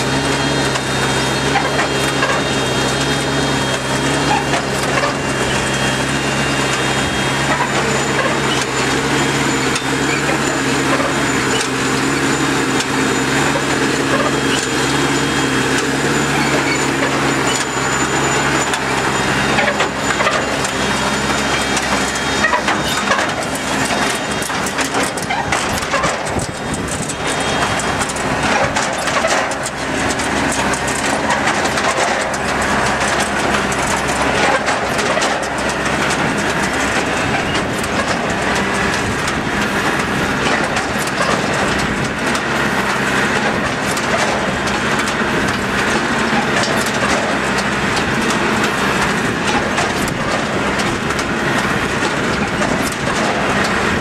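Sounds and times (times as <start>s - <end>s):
engine drone: 0.0s - 54.0s.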